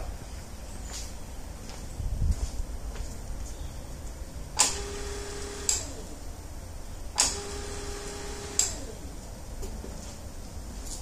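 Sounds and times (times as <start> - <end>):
electric motor hum: 4.6 - 6.2, 7.1 - 9.2.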